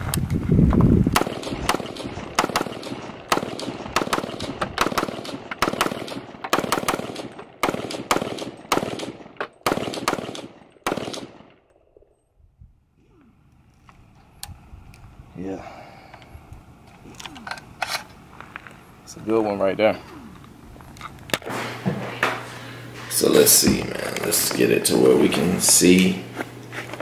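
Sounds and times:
rifle shots: 1.1s - 11.6s.

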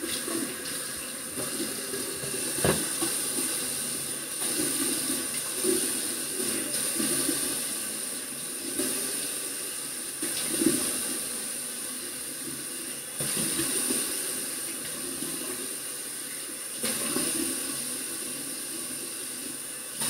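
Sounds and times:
water running from tap: 0.0s - 20.0s.

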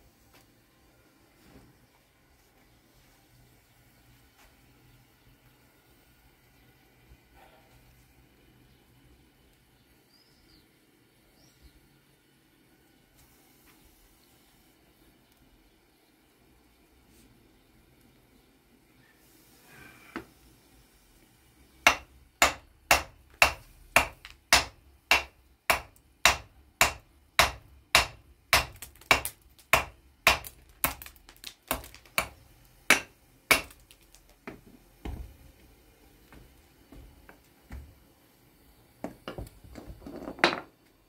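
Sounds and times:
hammer striking stone: 21.9s - 35.2s.

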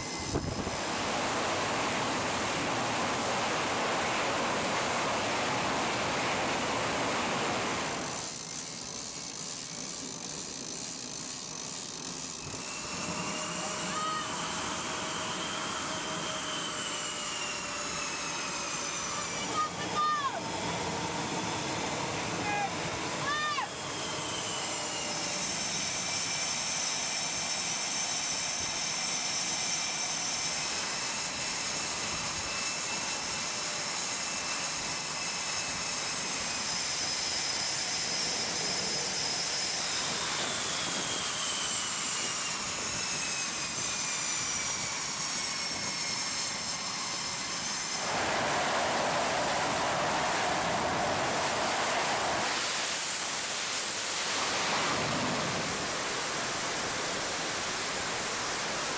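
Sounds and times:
constant rushing noise: 0.0s - 58.9s
jet turbine whine: 0.0s - 58.9s
loud rough rushing noise: 48.0s - 58.8s.

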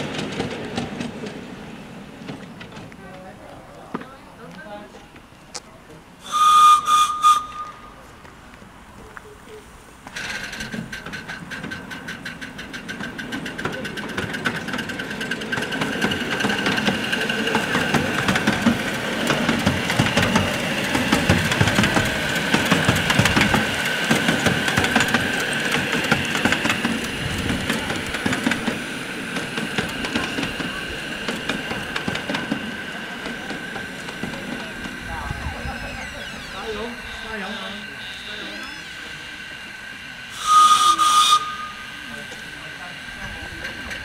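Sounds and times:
model train whine: 10.0s - 44.0s.

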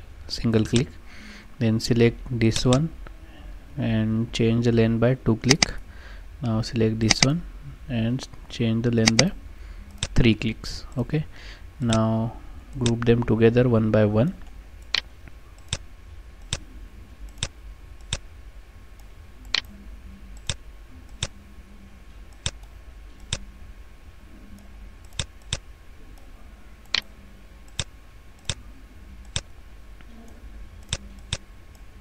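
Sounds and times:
faint steady hum: 0.0s - 32.0s
mouse buttons clicking: 9.0s - 9.3s.

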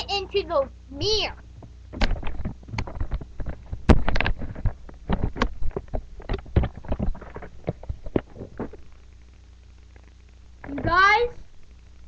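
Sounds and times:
microphone handling knocks: 1.6s - 8.9s.

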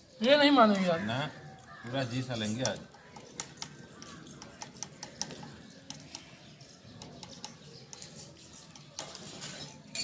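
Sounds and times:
spoon clinking on steel plate: 8.7s - 10.0s.

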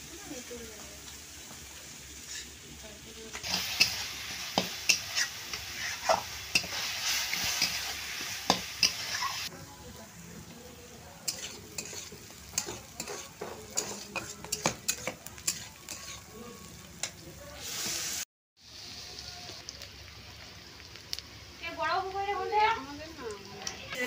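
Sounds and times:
food sizzling in a pan: 0.0s - 24.0s
metal spatula scraping a pan: 2.2s - 2.6s, 3.4s - 9.5s, 11.2s - 17.2s.

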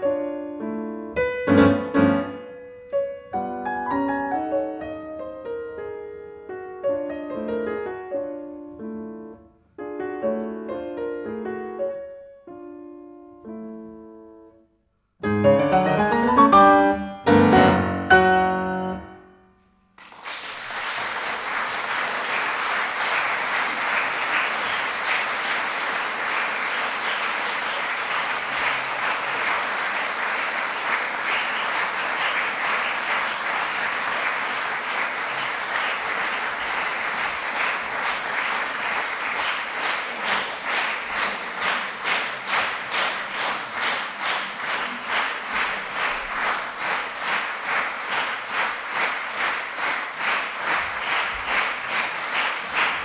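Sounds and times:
grand piano playing: 0.0s - 19.8s
audience applause: 20.0s - 53.0s
rhythmic clapping in unison: 20.0s - 53.0s.

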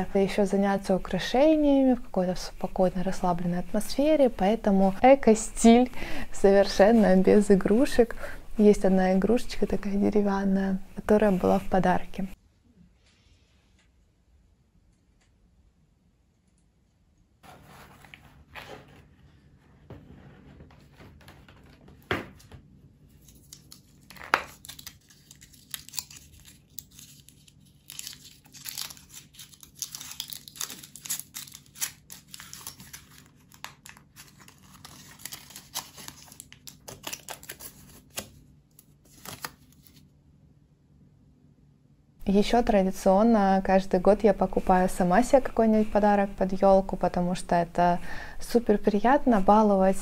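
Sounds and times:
paper being torn and crinkled: 23.1s - 40.0s.

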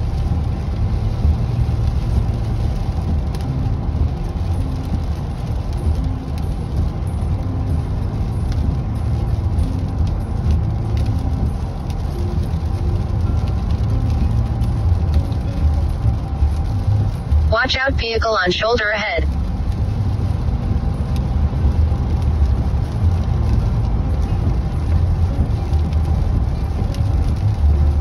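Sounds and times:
car engine running: 0.0s - 28.0s
tyres rumbling on wet road: 0.0s - 28.0s.

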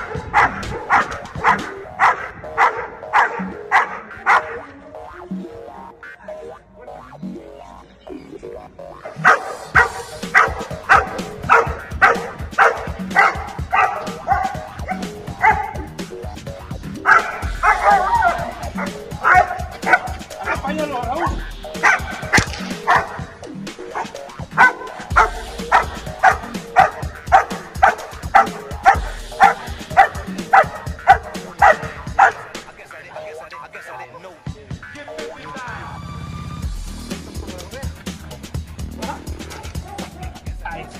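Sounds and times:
puppy barking: 0.0s - 4.7s, 9.0s - 15.9s, 17.0s - 20.7s, 21.8s - 23.3s, 23.9s - 32.6s, 39.4s - 40.5s
background music: 0.0s - 40.9s.

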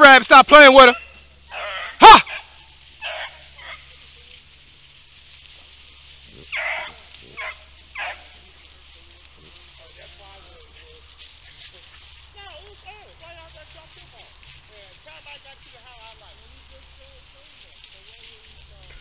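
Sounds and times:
hound yelp: 0.8s - 3.9s, 6.4s - 8.4s
hounds barking: 0.8s - 4.0s, 6.2s - 12.2s.

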